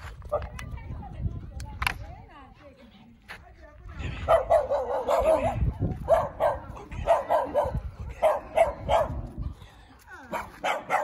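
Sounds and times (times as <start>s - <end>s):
dog barking: 4.3s - 9.2s, 10.3s - 11.0s.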